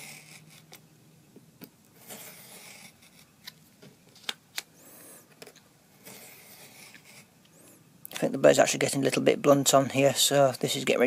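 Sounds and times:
craft knife scraping through card: 0.0 - 0.8, 2.0 - 3.6, 4.9 - 7.3.

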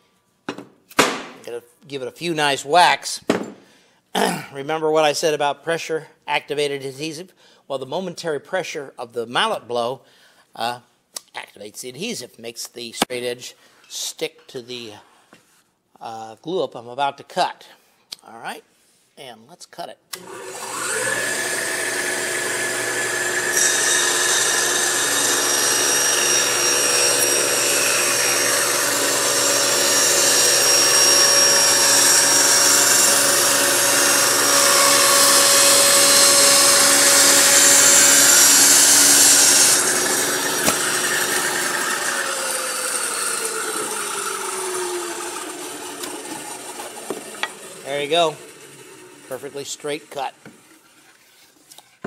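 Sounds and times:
saw blade winding down: 20.1 - 50.4
table saw cutting wood: 20.1 - 51.1.

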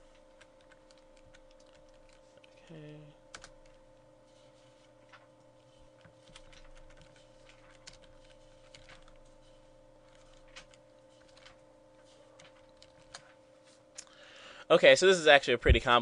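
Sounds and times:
steady low hum: 0.0 - 16.0
faint keyboard keystrokes: 12.4 - 14.1.

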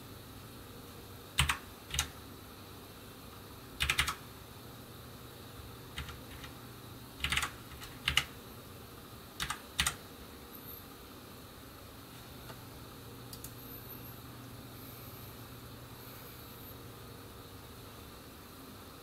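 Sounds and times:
computer keyboard keys pressed: 1.4 - 2.1, 3.8 - 4.2, 6.0 - 6.5, 7.2 - 8.3, 9.4 - 10.0.

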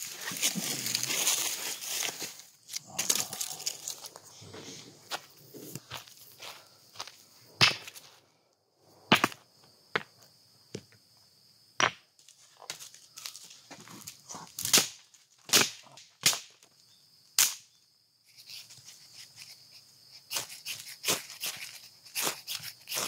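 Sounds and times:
dry sticks snapping: 0.4 - 4.2, 14.0 - 16.5
scraping and cracking strokes: 20.2 - 23.0.

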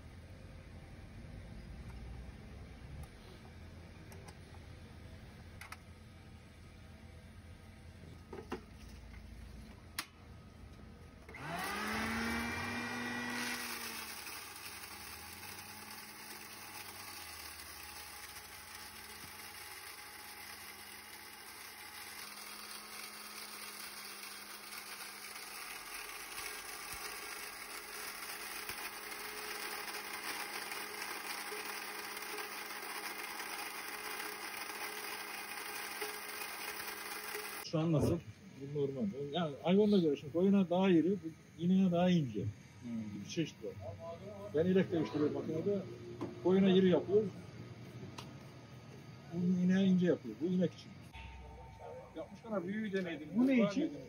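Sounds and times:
grain mill motor whirring: 11.2 - 37.7.

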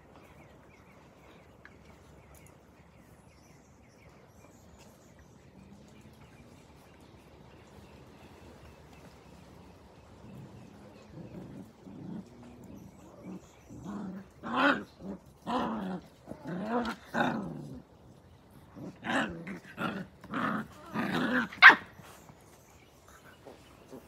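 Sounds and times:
puppy growling: 9.9 - 22.4.

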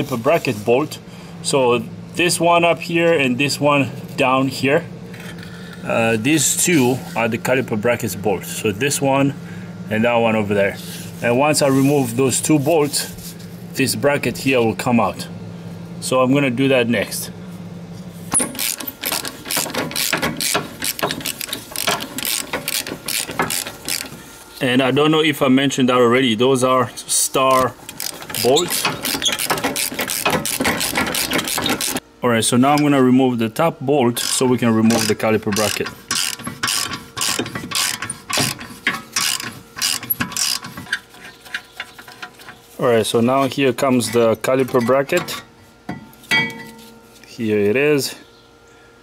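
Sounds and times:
hand ratchet clicking: 18.3 - 24.2, 27.5 - 32.0, 34.2 - 42.6.

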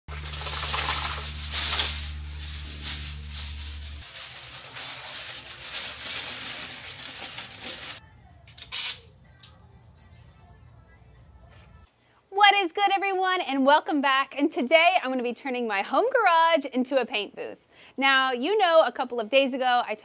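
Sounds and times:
paint spraying hiss: 0.1 - 5.9, 8.6 - 9.1.

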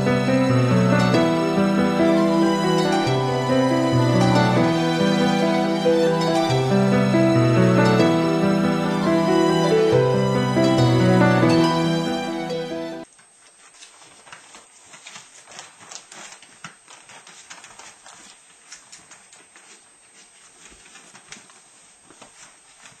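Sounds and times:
background music: 0.0 - 13.0
paws rustling on newspaper: 13.1 - 23.0.

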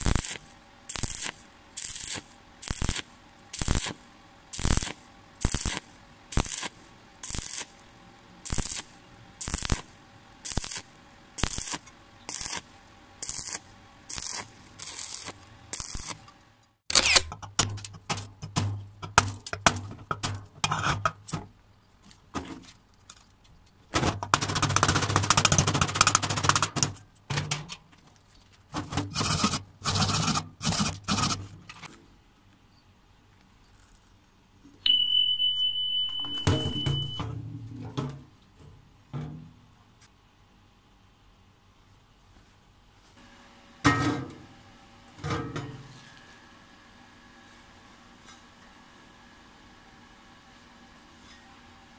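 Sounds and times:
welding arc crackling: 0.0 - 16.4.

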